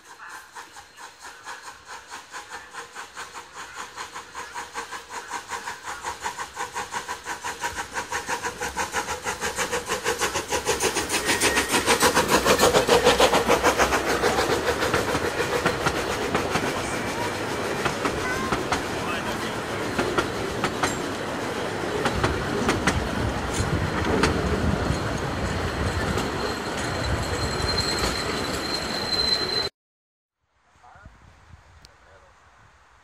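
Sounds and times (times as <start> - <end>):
coaches rolling on rails: 0.0 - 29.7
steam locomotive chuffing: 0.0 - 29.7.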